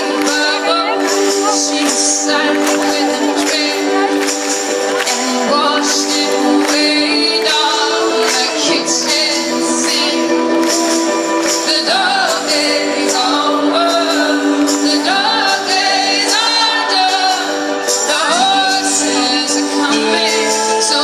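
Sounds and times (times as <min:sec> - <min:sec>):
rock band playing live: 0:00.0 - 0:21.0
woman singing: 0:00.0 - 0:21.0.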